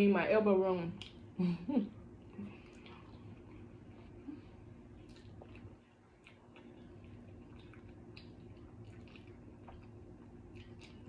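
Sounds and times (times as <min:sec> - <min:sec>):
steady low hum: 0:00.0 - 0:11.0
person chewing: 0:02.2 - 0:11.0.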